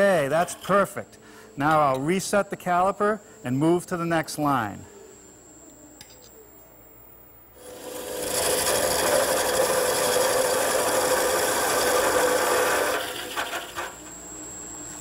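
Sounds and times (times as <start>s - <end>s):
lathe tool scraping wood: 0.0s - 0.9s, 7.6s - 14.0s.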